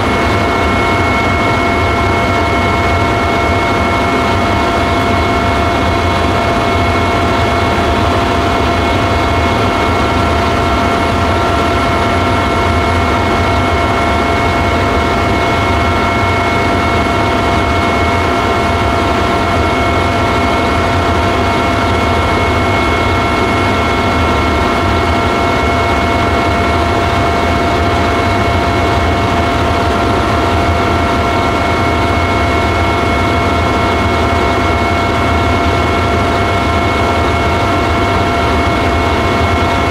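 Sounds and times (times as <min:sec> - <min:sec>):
helicopter engine and rotor drone: 0:00.0 - 0:39.9.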